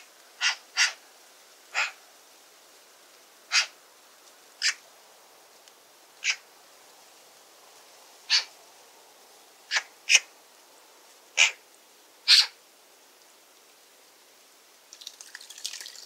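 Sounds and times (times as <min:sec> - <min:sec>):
magpie harsh calls: 0:00.4 - 0:01.0, 0:01.7 - 0:02.0, 0:03.5 - 0:03.8, 0:04.6 - 0:04.8, 0:06.2 - 0:06.4, 0:08.3 - 0:08.5, 0:11.4 - 0:11.6, 0:12.3 - 0:12.6.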